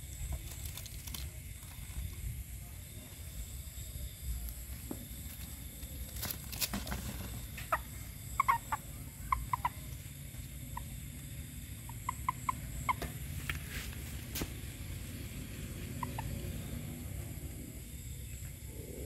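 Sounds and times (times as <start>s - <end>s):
steady low hum: 0.0s - 19.0s
frogs calling: 4.7s - 19.0s.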